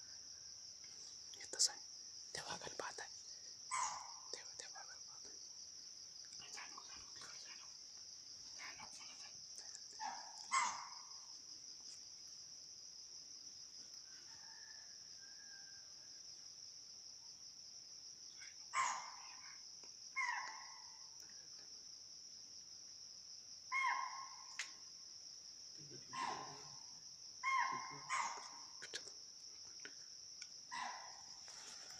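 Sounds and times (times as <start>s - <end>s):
insects chirring: 0.0s - 31.9s.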